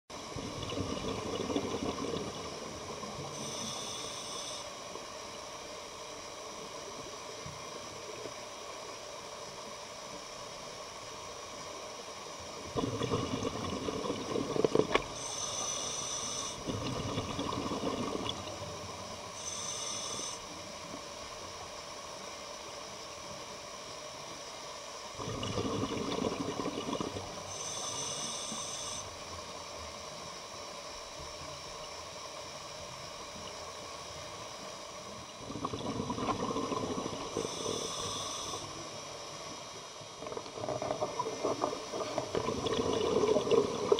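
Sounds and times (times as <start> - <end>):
steady faint hiss: 0.2 - 43.9
diver breathing through regulator: 3.3 - 4.8, 12.8 - 18.2, 19.4 - 20.5, 25.2 - 29.1, 36.3 - 38.9.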